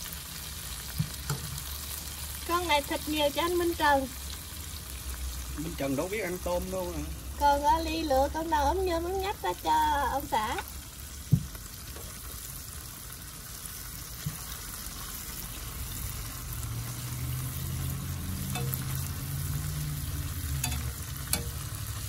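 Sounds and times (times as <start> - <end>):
prawns sizzling in oil: 0.0 - 22.0
metal tongs clicking on pan: 18.4 - 19.2, 20.5 - 21.9.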